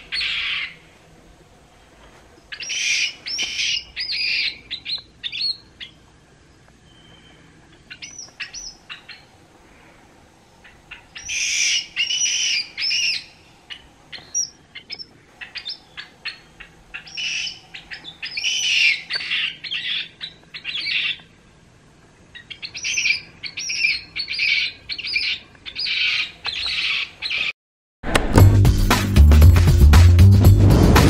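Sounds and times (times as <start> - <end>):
baby monkey screaming: 0.0 - 0.8, 11.0 - 13.4, 15.4 - 21.2.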